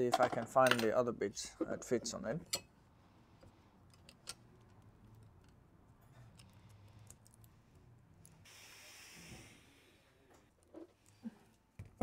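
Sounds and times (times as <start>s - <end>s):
short hiss: 8.4s - 10.0s.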